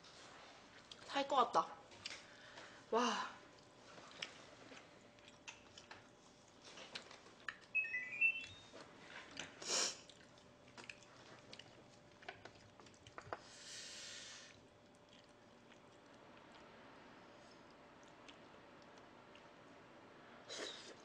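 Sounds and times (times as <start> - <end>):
quiet chewing: 0.1 - 1.2, 3.4 - 19.8
rising electronic beeps: 7.8 - 8.7.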